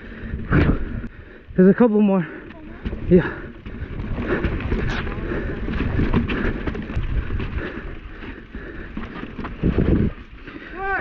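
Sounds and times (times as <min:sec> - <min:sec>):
bike rattling and clicking: 0:00.0 - 0:11.0
bike tyres rumbling over rock: 0:02.5 - 0:11.0.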